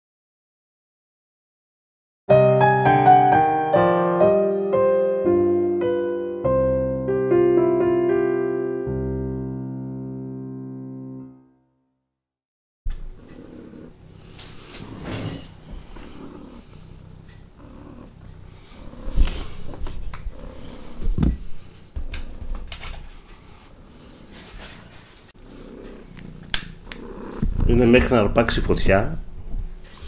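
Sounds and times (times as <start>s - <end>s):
loud thumps: 27.4s - 27.7s.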